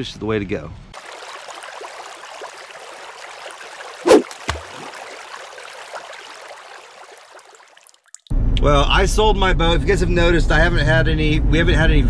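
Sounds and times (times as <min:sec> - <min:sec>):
running water: 0:01.0 - 0:08.3.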